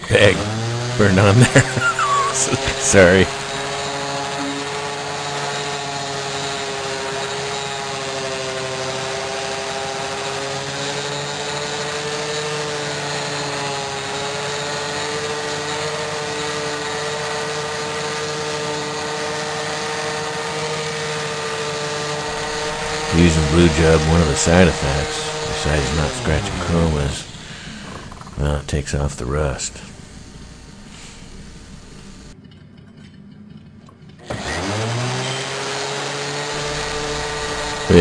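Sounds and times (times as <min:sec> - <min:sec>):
orbital sander motor whine: 0:00.0 - 0:32.4, 0:34.2 - 0:38.0
pad rubbing hiss: 0:29.8 - 0:32.3.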